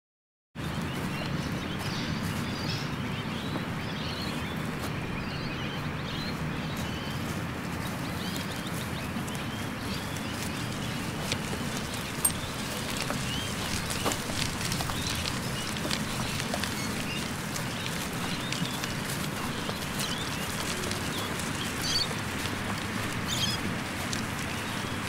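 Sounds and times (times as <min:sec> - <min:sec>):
low outdoor background noise: 0:00.6 - 0:25.0
small birds chirping: 0:00.6 - 0:25.0.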